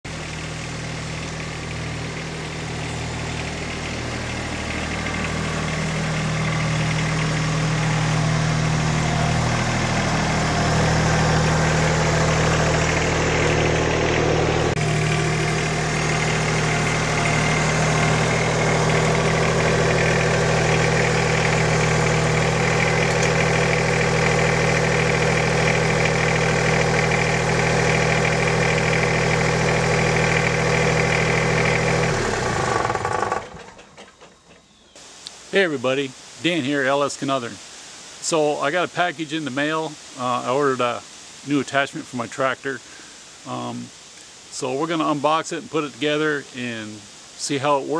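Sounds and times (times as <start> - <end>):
tractor engine running: 0.0 - 34.8.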